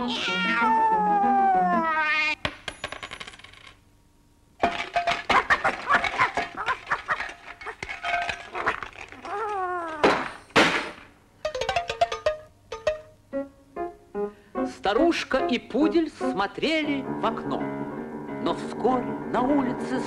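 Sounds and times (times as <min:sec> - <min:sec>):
cartoon clinking and clattering: 0:04.6 - 0:10.8, 0:11.4 - 0:13.1.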